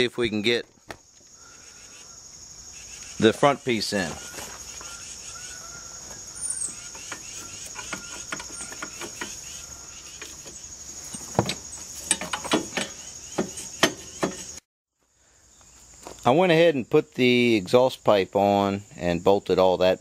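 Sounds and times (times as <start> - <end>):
insect chorus: 0.0 - 20.0
metal clinks and knocks: 10.2 - 14.6.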